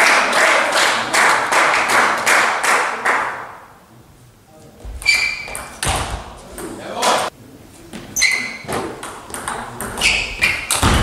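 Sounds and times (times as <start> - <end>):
spectators clapping rhythmically: 0.0 - 3.6
table tennis ball hits: 5.1 - 7.2, 8.7 - 11.0.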